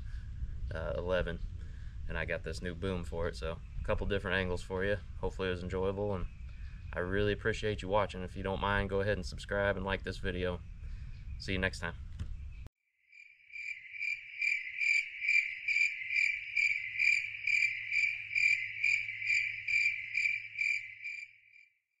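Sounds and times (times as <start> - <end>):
cricket chirping: 13.1 - 21.7.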